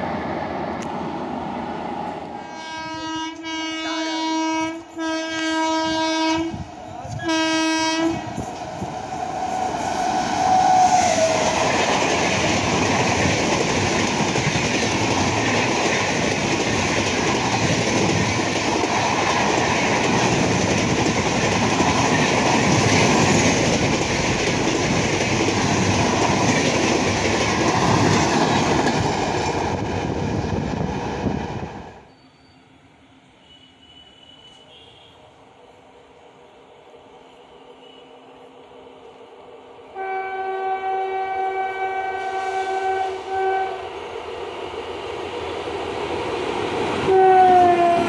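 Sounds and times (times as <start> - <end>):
train passing at speed: 0.0 - 48.0
locomotive horn: 2.4 - 8.3, 40.0 - 43.8, 47.1 - 48.0.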